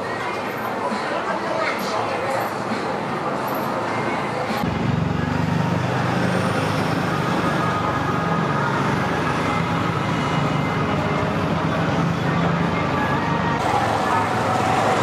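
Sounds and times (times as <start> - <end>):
street traffic noise: 0.0 - 15.0
vehicle engine running: 4.6 - 15.0.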